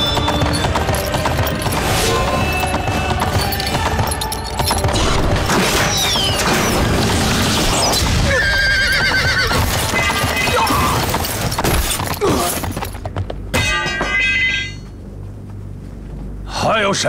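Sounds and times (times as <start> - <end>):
hoofbeats thudding: 0.0 - 6.5, 8.4 - 16.4
horses whinnying: 7.7 - 13.0.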